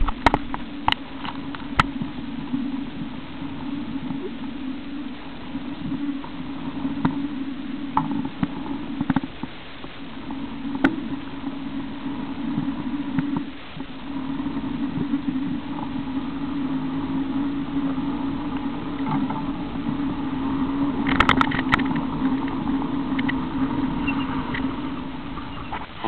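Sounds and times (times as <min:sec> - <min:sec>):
off-road vehicle engine droning: 0:14.1 - 0:26.0.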